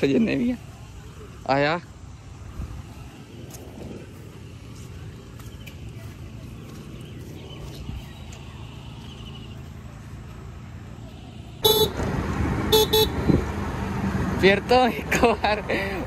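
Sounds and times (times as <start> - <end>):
vehicle horn honking: 11.6 - 12.1, 12.7 - 13.4.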